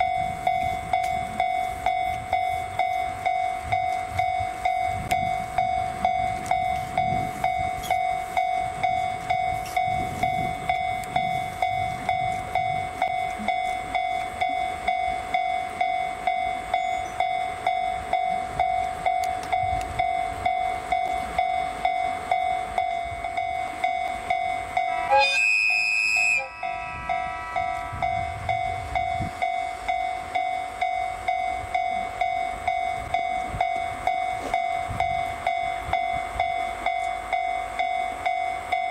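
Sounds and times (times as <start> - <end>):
level crossing alarm ringing: 0.0 - 38.9
train horn: 24.8 - 28.1.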